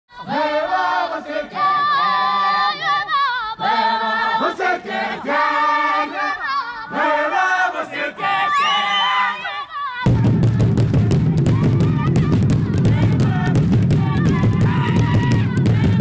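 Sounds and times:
group singing together: 0.1s - 16.0s.

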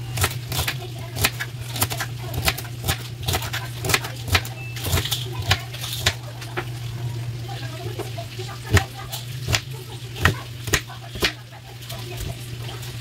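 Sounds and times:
knife chopping on cutting board: 0.2s - 6.2s, 8.7s - 11.4s.

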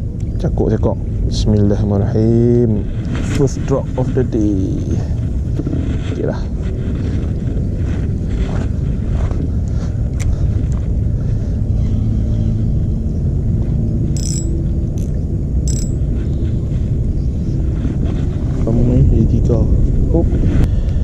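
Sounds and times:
wind buffeting microphone: 0.0s - 14.0s, 14.9s - 21.0s
fishing reel clicks and crackles: 14.2s - 14.5s, 15.7s - 16.0s.

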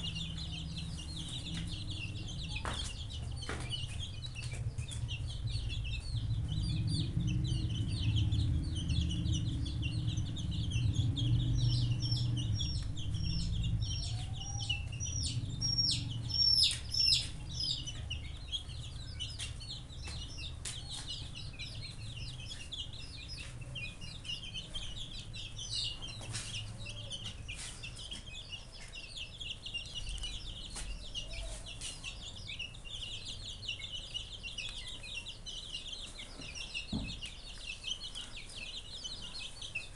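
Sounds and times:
low rumble: 0.0s - 20.6s
chicks peeping: 0.0s - 39.9s.

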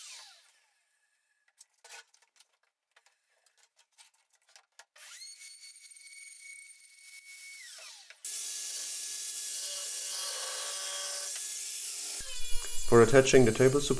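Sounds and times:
router motor whine: 9.6s - 13.5s.

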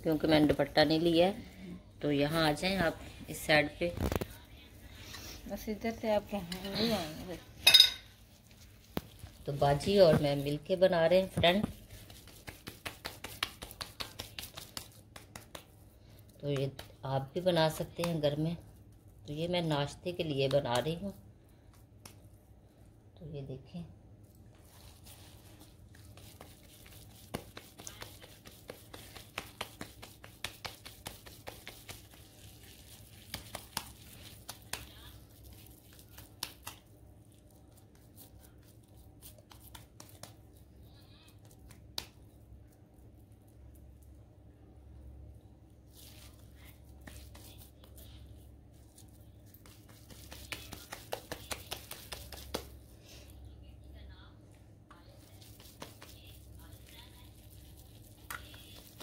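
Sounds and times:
low steady hum: 0.0s - 59.0s
hands patting moist mixture: 8.3s - 22.6s, 24.2s - 44.2s, 45.8s - 53.4s, 54.8s - 59.0s.

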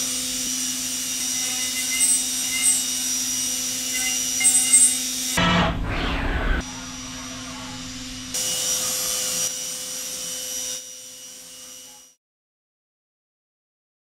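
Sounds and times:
machining center whirring: 0.0s - 9.8s.

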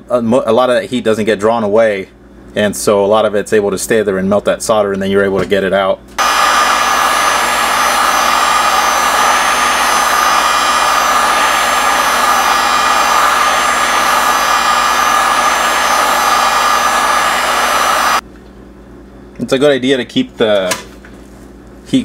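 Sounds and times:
fan whine: 6.1s - 20.0s
heat gun air rushing: 6.2s - 18.2s.

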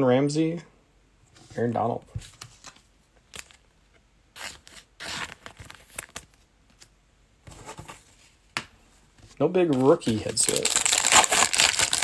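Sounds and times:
foil wrapper rustles: 9.8s - 12.0s.

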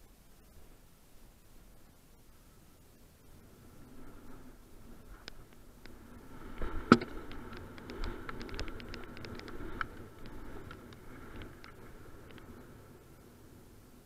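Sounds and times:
bike rattling over gravel: 3.8s - 13.1s
sharp clicks from bike: 5.2s - 12.6s.

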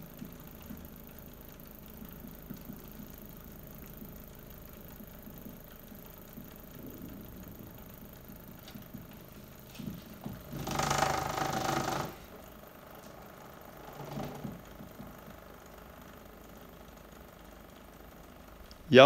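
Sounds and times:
electric motor running hum: 0.0s - 18.6s.

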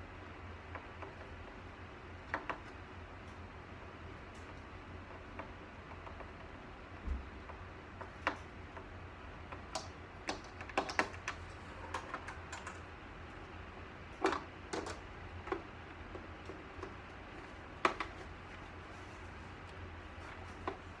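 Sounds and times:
clicks and knocks on plastic and metal: 2.2s - 3.4s, 4.3s - 12.9s, 14.1s - 21.0s.

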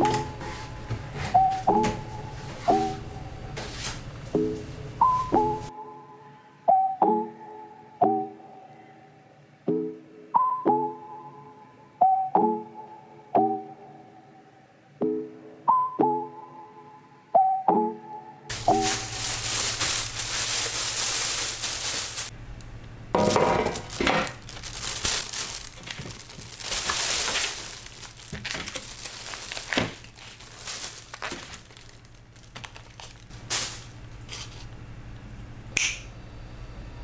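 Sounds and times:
bags knocking on metal tray: 18.5s - 22.3s, 23.2s - 33.9s
plastic bags crinkling: 18.5s - 22.3s, 23.2s - 34.8s.

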